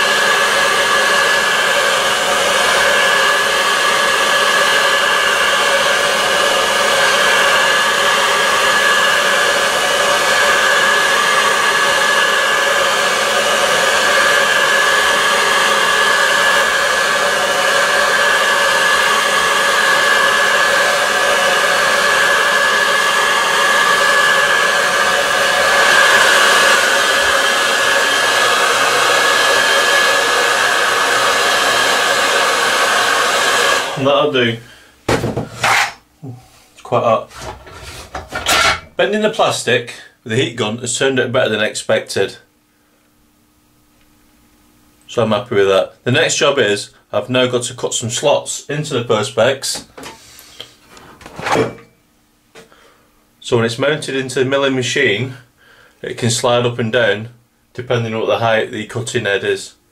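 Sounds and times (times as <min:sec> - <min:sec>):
heat gun blowing hot air: 0:00.0 - 0:34.3.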